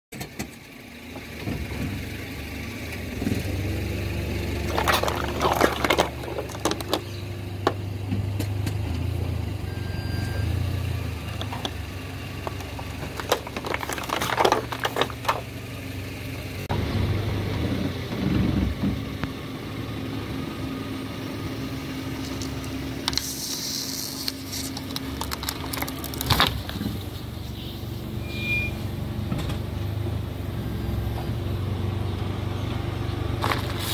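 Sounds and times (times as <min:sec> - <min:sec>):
car engine humming: 0:00.8 - 0:28.1
plastic bottles crushed by tyre: 0:04.6 - 0:07.8, 0:11.4 - 0:15.6, 0:24.7 - 0:26.9, 0:33.4 - 0:33.9.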